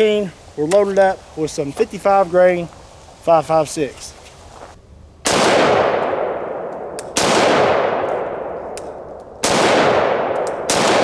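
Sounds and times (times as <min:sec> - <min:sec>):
rifle shots with echo: 0:05.2 - 0:11.0.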